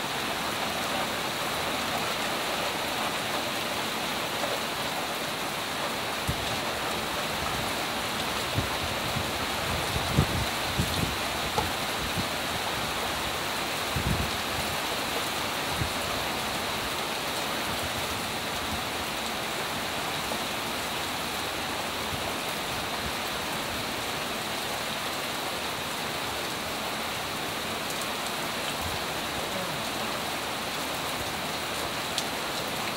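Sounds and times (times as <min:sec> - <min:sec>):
light rain falling: 0:00.0 - 0:32.9.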